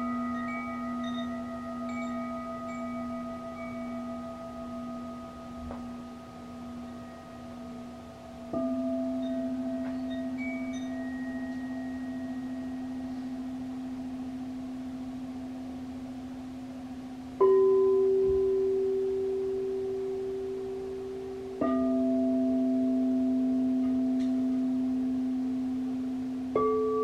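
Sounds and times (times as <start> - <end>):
higher singing bowl struck: 0.0 - 27.0
low singing bowl ringing: 0.0 - 27.0.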